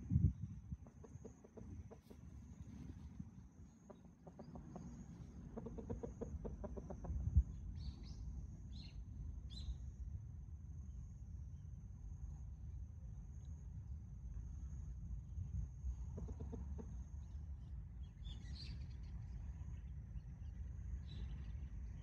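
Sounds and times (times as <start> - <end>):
chickens clucking softly: 0.7 - 8.1, 16.0 - 17.5.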